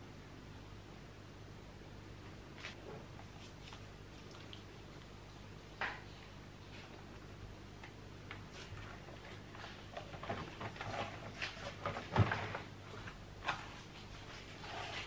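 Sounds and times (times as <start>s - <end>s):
bread dough squelching: 2.6s - 5.8s.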